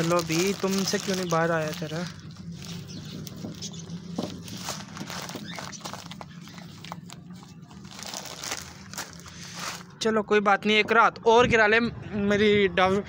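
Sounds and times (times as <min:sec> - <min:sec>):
plastic bag crinkling: 0:00.0 - 0:09.9.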